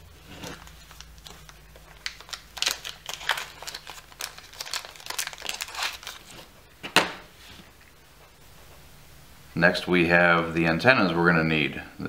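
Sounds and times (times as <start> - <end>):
plastic pouch crinkling: 0.4 - 6.5.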